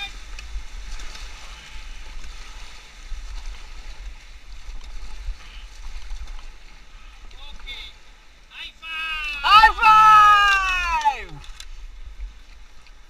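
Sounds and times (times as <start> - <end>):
river current rushing and gurgling: 0.0 - 13.0.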